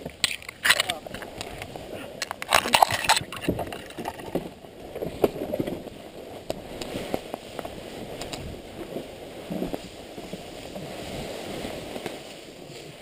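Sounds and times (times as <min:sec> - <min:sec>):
bike knocking over sticks: 0:00.0 - 0:05.9.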